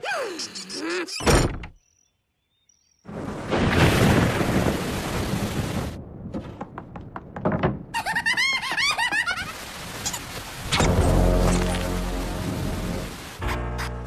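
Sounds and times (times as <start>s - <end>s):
heavy rain: 3.1s - 6.2s, 8.0s - 13.4s
sharp knocks: 6.3s - 7.8s.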